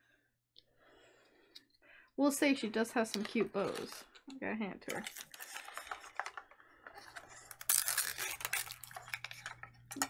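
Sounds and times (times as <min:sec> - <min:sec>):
packaging crinkling: 0:04.9 - 0:10.0.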